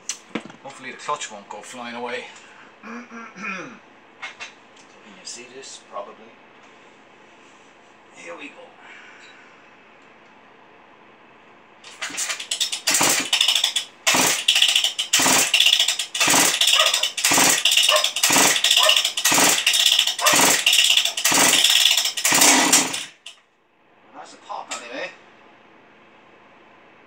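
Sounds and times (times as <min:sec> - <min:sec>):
chainsaw recoil starter pulls: 0:11.9 - 0:23.4.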